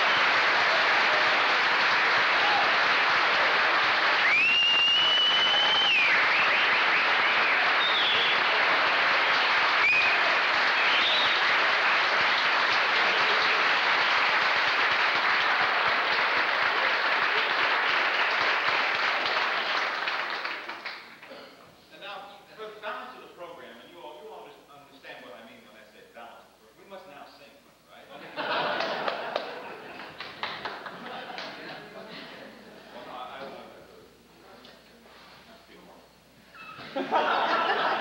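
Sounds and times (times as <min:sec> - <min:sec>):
audience applauding: 0:00.0 - 0:21.3, 0:28.4 - 0:31.8
high whistle: 0:04.2 - 0:08.6, 0:09.8 - 0:11.5, 0:36.5 - 0:36.8.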